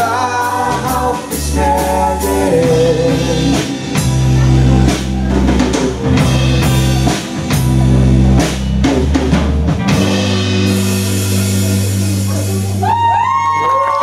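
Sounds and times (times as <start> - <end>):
drum kit beat: 0.0 - 13.6
heavy bass notes: 0.0 - 13.8.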